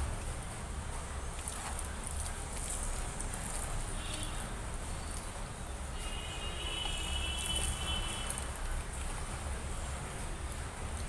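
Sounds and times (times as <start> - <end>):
hand squishing rice: 0.0 - 5.9, 6.6 - 11.0
wet clicks and smacks: 1.3 - 5.5, 6.8 - 9.5.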